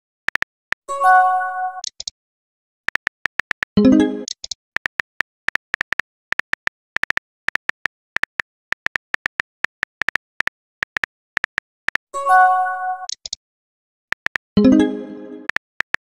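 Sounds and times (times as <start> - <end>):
keyboard key clicks: 2.9 - 12.0, 13.1 - 13.4, 14.1 - 14.4.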